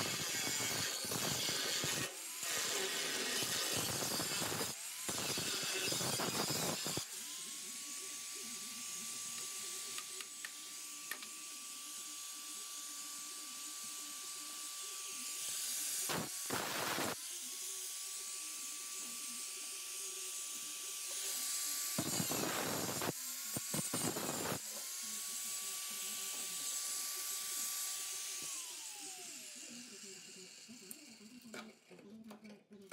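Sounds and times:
angle grinder whining: 0:00.0 - 0:31.5
grinder cutting through steel: 0:00.0 - 0:31.9.

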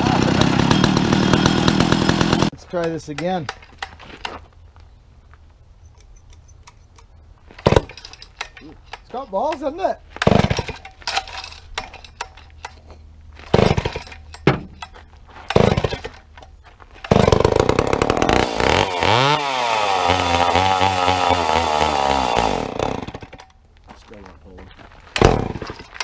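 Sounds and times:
chainsaw running unevenly: 0:00.0 - 0:02.5, 0:13.5 - 0:14.2, 0:15.5 - 0:16.2, 0:17.0 - 0:23.4.

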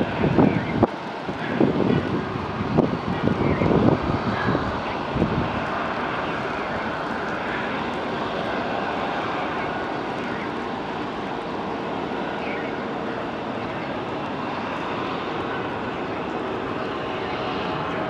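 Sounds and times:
gusty bumps of noise: 0:00.0 - 0:07.1
jet engines roaring at takeoff: 0:00.0 - 0:18.0.

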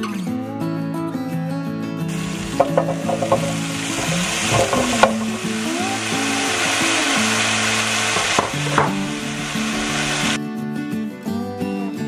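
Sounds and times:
food pieces knocking on pan: 0:02.1 - 0:05.9, 0:06.5 - 0:10.3
oil sizzling and hissing: 0:02.1 - 0:10.4.

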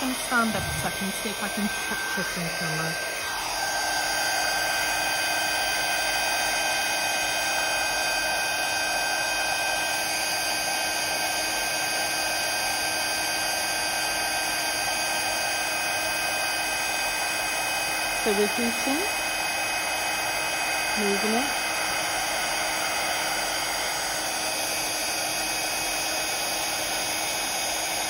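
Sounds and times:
heat gun blowing with whine: 0:00.0 - 0:28.0.

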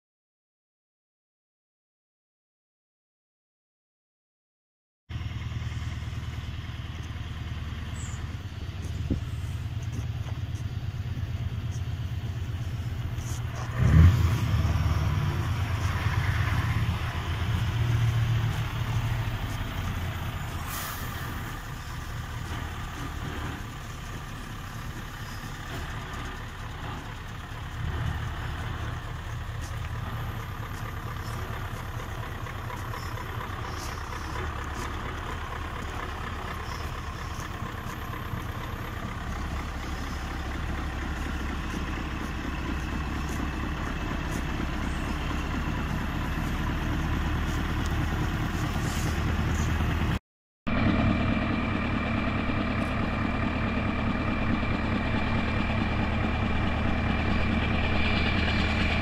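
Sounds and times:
diesel truck engine rumbling: 0:05.1 - 0:59.0
loud engine burst: 0:50.8 - 0:59.0.

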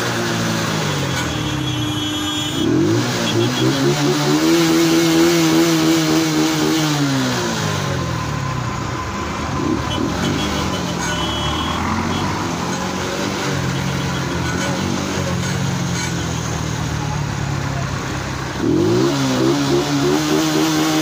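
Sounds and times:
engines running: 0:00.0 - 0:21.0
road noise: 0:00.0 - 0:21.0
engine revving: 0:02.5 - 0:17.0, 0:17.9 - 0:21.0.

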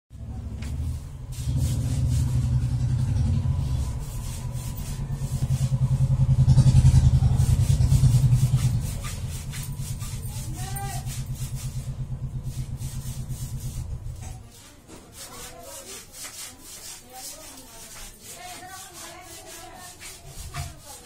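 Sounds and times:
engine pulsing rumble: 0:00.1 - 0:14.4.

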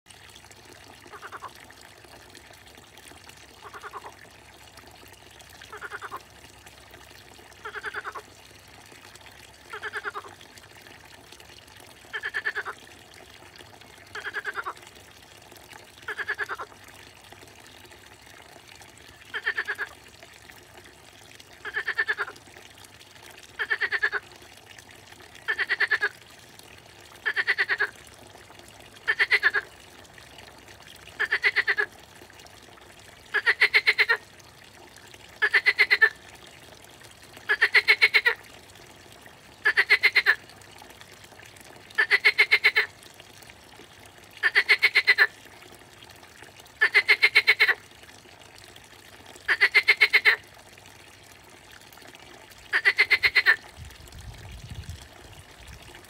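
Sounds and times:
frog croaking: 0:03.6 - 0:04.1, 0:05.7 - 0:06.2, 0:07.6 - 0:08.2, 0:09.7 - 0:10.3, 0:12.1 - 0:12.8, 0:14.2 - 0:14.8, 0:16.1 - 0:16.7, 0:19.3 - 0:19.9, 0:21.6 - 0:22.4, 0:23.6 - 0:24.2, 0:25.5 - 0:26.1, 0:27.2 - 0:27.9, 0:29.1 - 0:29.6, 0:31.2 - 0:31.9, 0:33.3 - 0:34.2, 0:35.4 - 0:36.1, 0:37.5 - 0:38.4, 0:39.6 - 0:40.4, 0:42.0 - 0:42.9, 0:44.4 - 0:45.3, 0:46.8 - 0:47.8, 0:49.5 - 0:50.4, 0:52.7 - 0:53.6.

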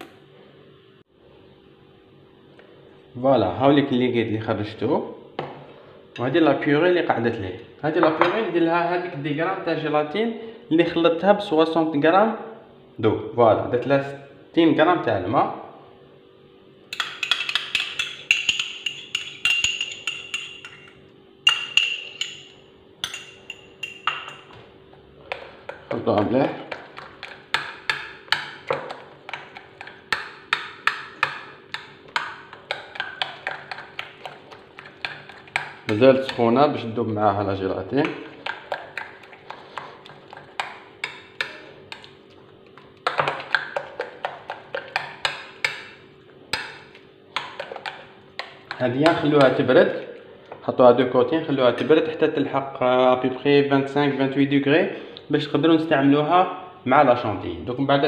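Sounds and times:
spoon clinking against glass bowl: 0:16.9 - 0:24.6.

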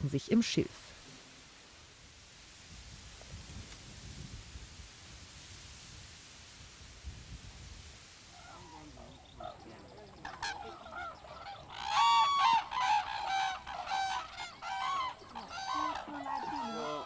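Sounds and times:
cranes honking: 0:08.4 - 0:17.0.

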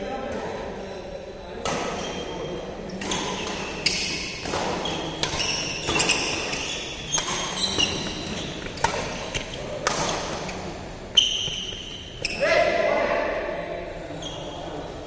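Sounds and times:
racket striking shuttlecock: 0:03.0 - 0:10.5
sneaker squeaks on court: 0:03.0 - 0:12.4.

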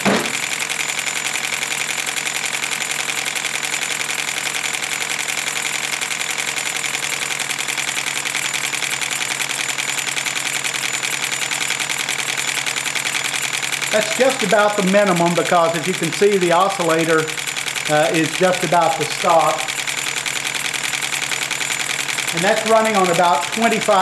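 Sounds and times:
model steam engines clattering: 0:10.2 - 0:24.0.

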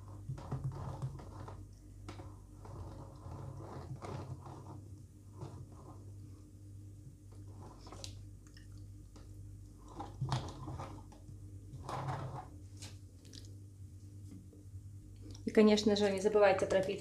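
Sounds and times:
soft scrapes and knocks: 0:00.0 - 0:06.4, 0:07.3 - 0:08.2, 0:09.8 - 0:13.0
steady low hum: 0:00.0 - 0:17.0.

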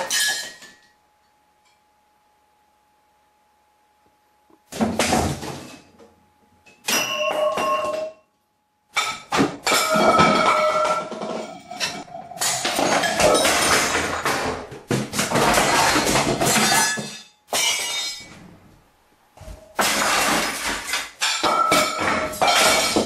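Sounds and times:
faint steady hum: 0:00.0 - 0:23.0
household objects crashing and clattering: 0:04.7 - 0:05.9, 0:08.9 - 0:18.6, 0:19.4 - 0:23.0.

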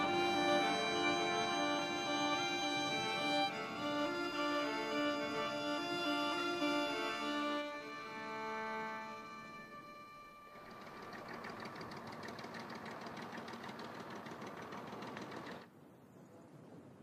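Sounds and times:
fast mechanical rattle: 0:10.6 - 0:15.7.

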